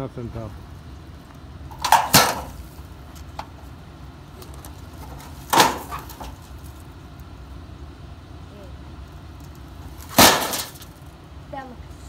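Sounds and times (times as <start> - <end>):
sheet of tin dropped on ground: 1.7 - 2.7, 5.4 - 6.4, 10.0 - 10.9.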